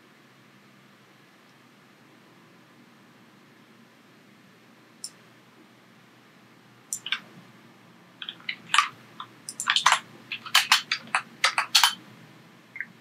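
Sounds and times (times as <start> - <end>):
mouse clicks: 6.9 - 7.2, 8.2 - 12.0
keyboard keystrokes: 7.0 - 7.2, 8.2 - 8.9, 9.5 - 12.0.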